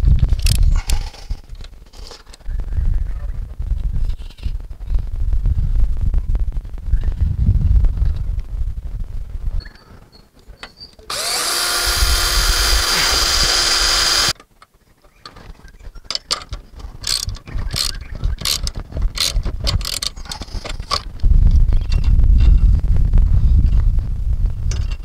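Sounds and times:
tool and metal fittings clicking: 11.0s - 14.5s, 16.1s - 21.1s
power drill running: 11.1s - 14.4s.

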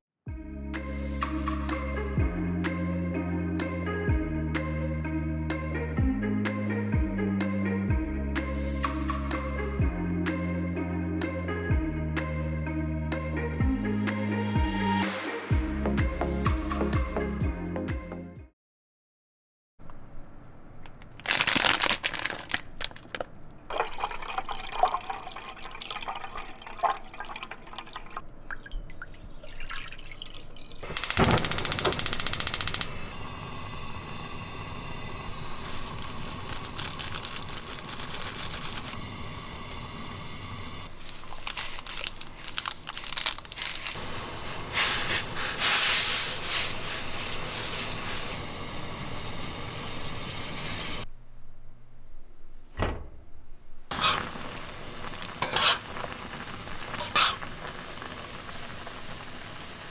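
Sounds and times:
running water: 23.7s - 31.0s.

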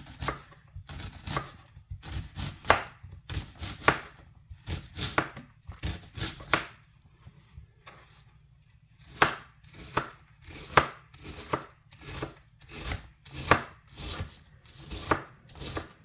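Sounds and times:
knife chopping on cutting board: 0.0s - 6.8s, 9.0s - 16.0s.

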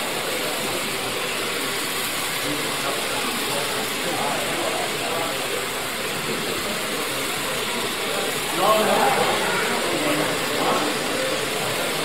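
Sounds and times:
indistinct crowd chatter: 0.0s - 12.0s.

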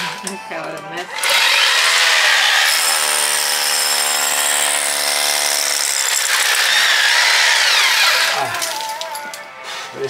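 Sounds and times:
electric drill boring into brick: 1.2s - 8.8s.

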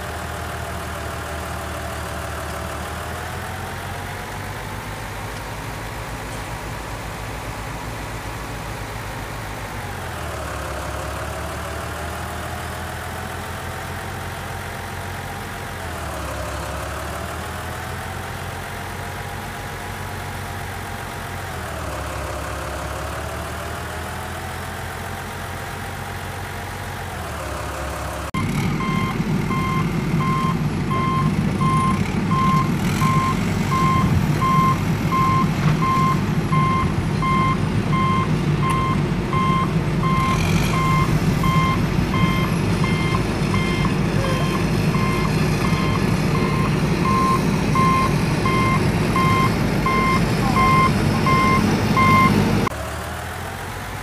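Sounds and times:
engine running: 0.0s - 54.0s
heavy truck engine rumbling: 0.0s - 54.0s
reversing alarm beeps: 28.8s - 52.4s.

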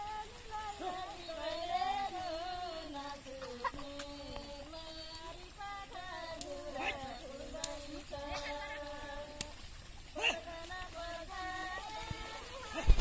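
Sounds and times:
woman singing folk melody: 0.0s - 13.0s
faint clicks: 0.1s - 13.0s.

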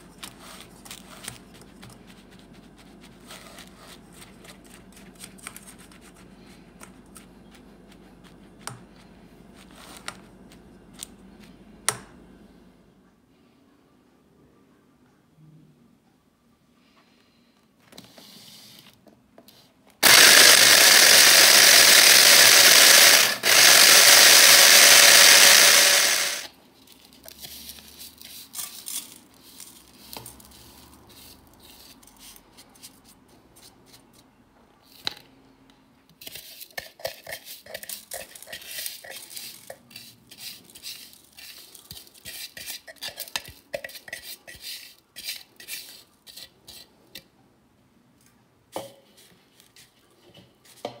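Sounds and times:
spatula scraping plastic bowl: 0.1s - 4.8s, 36.2s - 47.0s
electric chopper motor: 20.0s - 26.5s.

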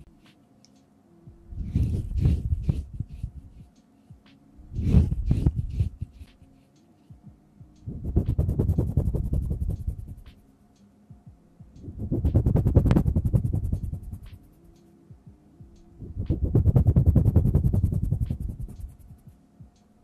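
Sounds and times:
hands rubbing on microphone: 1.5s - 3.7s, 4.7s - 6.8s, 7.9s - 10.4s, 11.9s - 14.8s, 16.0s - 19.4s.

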